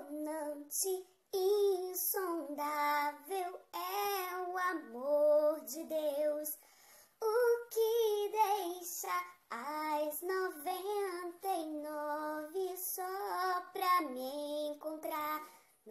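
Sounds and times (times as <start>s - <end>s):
high voice singing gospel: 7.2s - 15.9s.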